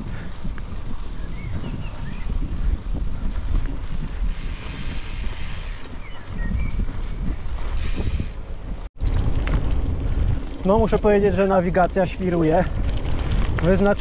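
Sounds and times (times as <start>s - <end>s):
bike tyres churning through sand: 0.0s - 10.4s
wind rumbling on microphone: 0.0s - 14.0s.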